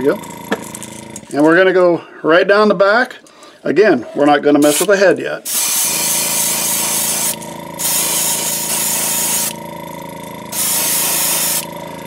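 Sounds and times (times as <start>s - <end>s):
steady hum: 3.9s - 12.0s
airbrush hissing air: 4.6s - 9.6s, 10.5s - 11.7s.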